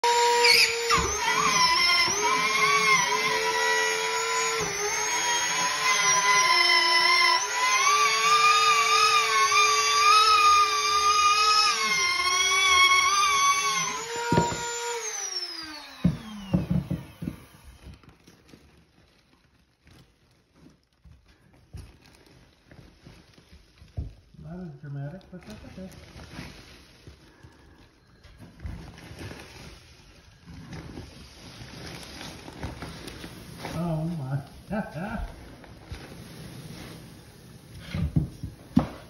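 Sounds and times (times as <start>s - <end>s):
power tool motor whine: 0.0s - 18.3s
pellets pattering: 18.2s - 37.4s.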